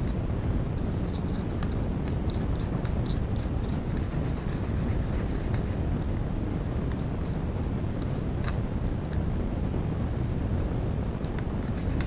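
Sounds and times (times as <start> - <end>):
toothbrush scratching plastic: 0.9 - 6.1, 11.4 - 12.0.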